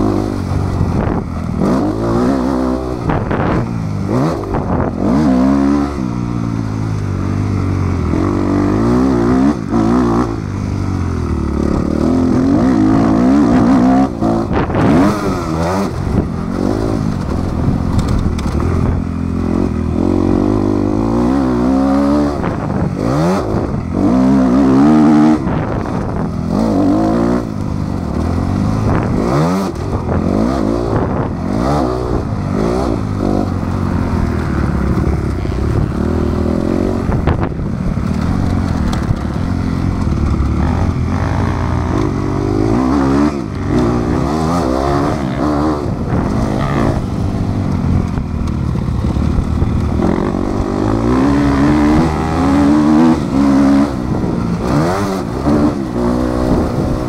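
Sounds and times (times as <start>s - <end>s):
motocross bike engine revving: 0.0s - 57.0s
knocks and clatter: 17.0s - 19.2s, 34.2s - 42.6s.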